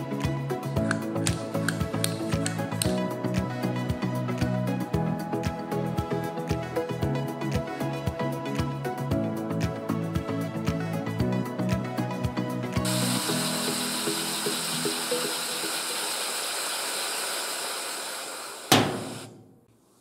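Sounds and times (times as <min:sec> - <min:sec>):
steam engine air hiss: 0:12.8 - 0:19.4
sharp knock: 0:18.7 - 0:19.7.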